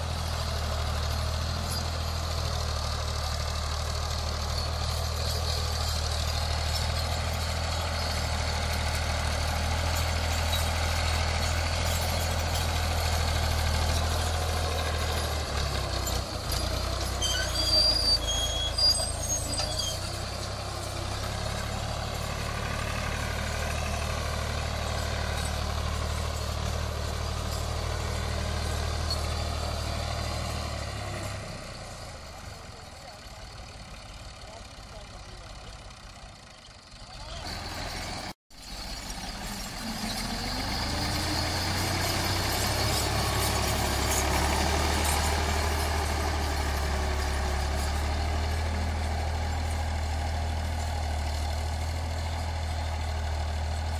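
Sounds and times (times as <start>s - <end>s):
tractor diesel engine running: 0.0s - 53.9s
short high squeaks: 9.9s - 31.4s, 37.5s - 48.7s.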